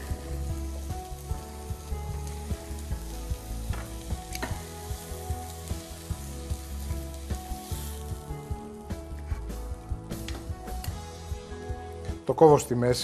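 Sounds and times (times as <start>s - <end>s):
chicken sizzling in a frying pan: 0.0s - 9.0s.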